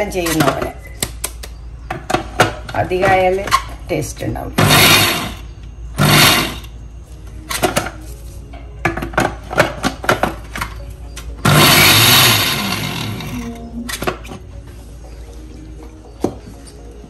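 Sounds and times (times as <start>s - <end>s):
mixer grinder bursts: 4.6s - 5.4s, 6.0s - 6.7s, 11.4s - 13.5s.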